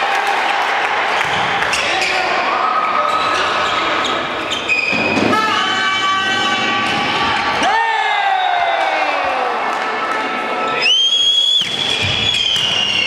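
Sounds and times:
people shouting and calling: 5.3 - 9.8.

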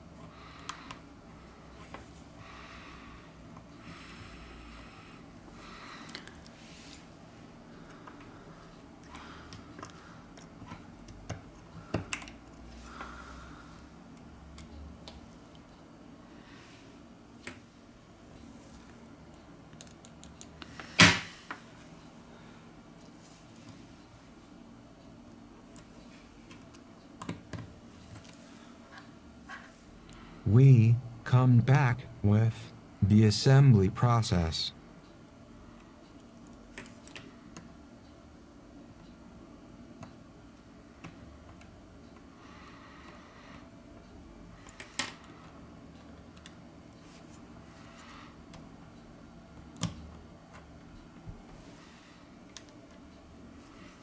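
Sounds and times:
low steady hum: 0.0 - 54.0.

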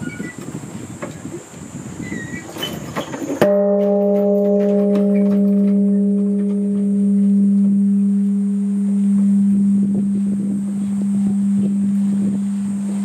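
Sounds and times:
temple bell ringing: 3.4 - 13.0.

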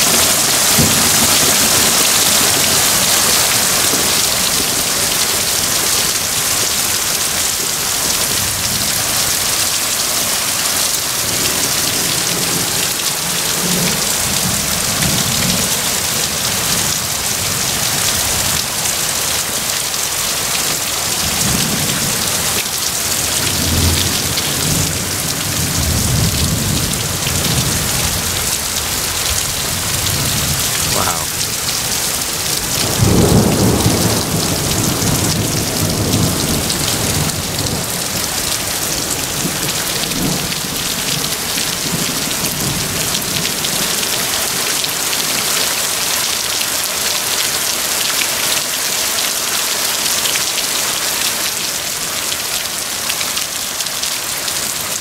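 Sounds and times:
heavy rain pouring: 0.0 - 55.0
thunder rumbling: 23.2 - 43.0.

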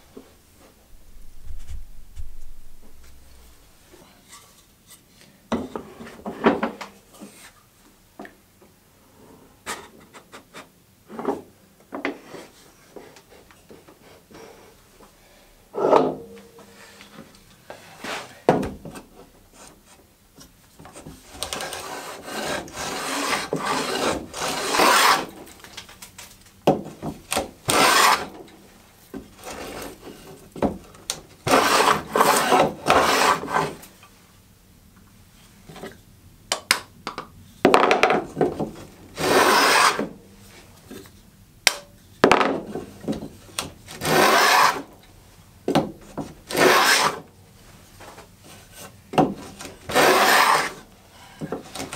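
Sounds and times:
wooden plane hissing strokes: 21.8 - 25.3, 31.5 - 33.7, 39.2 - 40.0, 44.1 - 44.8, 46.6 - 47.2, 49.9 - 51.4.

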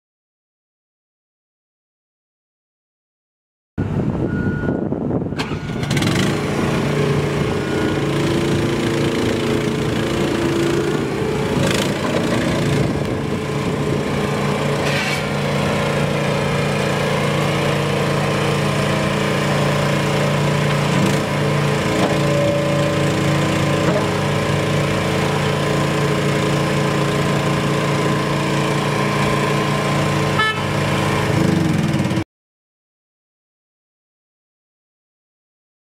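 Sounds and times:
skid steer engine running: 3.8 - 32.2.

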